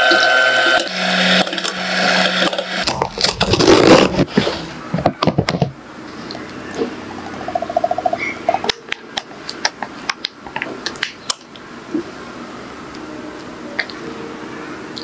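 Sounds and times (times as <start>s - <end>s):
electric hand mixer humming: 0.0s - 2.9s
cardboard carton tearing: 2.8s - 4.4s.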